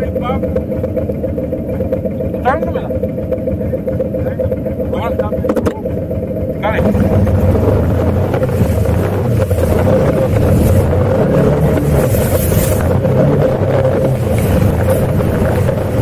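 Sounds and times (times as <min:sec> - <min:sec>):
atv engine running: 0:00.0 - 0:16.0
water splashing around wheels: 0:00.0 - 0:16.0.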